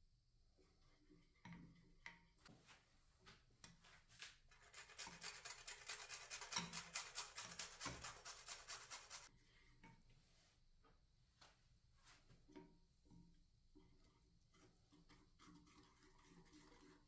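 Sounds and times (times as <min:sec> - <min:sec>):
nutmeg rasped on metal grater: 0:04.5 - 0:09.3.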